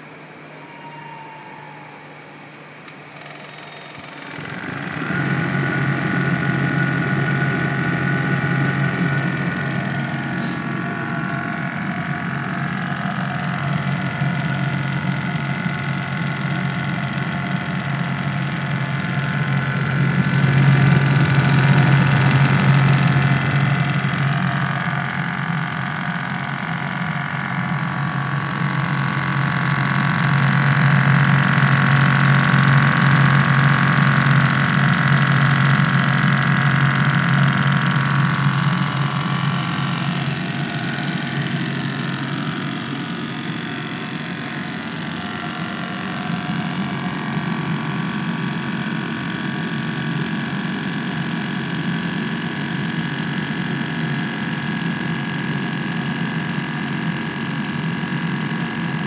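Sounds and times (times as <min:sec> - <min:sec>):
high whine: 0:00.0 - 0:30.4, 0:36.3 - 0:49.0
heater burner humming: 0:00.0 - 0:59.0.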